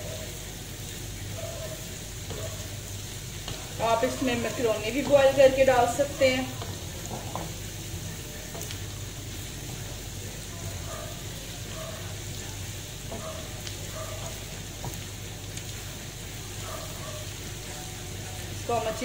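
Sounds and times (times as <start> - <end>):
vegetables sizzling in hot oil: 0.0 - 19.0
spatula tapping and scraping pan: 3.4 - 7.6.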